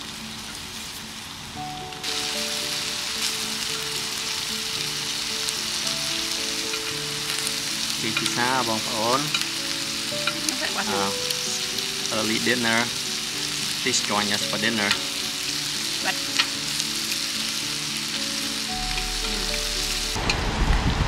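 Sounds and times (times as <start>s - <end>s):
background music with held notes: 0.0s - 20.2s
food sizzling on grill pan: 0.0s - 20.2s
wavering sung voice: 10.3s - 12.9s, 19.0s - 20.1s.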